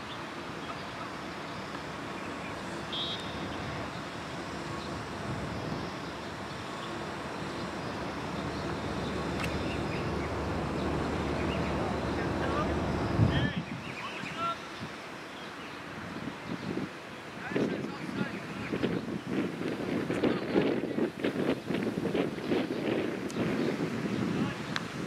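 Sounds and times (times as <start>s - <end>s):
faint high chirp: 0.0s - 10.4s
distant traffic rumble and hiss: 0.0s - 25.0s.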